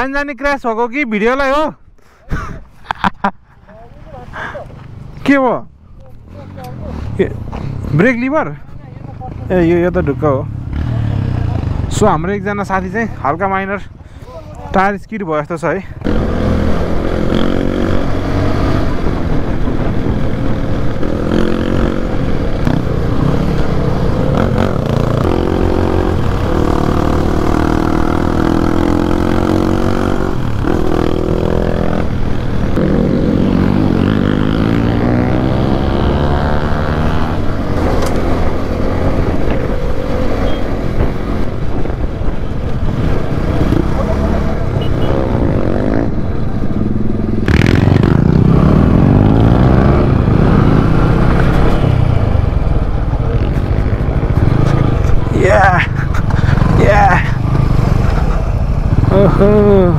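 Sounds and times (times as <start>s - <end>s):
motorcycle engine accelerating: 9.0s - 12.9s, 16.0s - 59.9s
wind rumble on microphone: 37.3s - 55.4s.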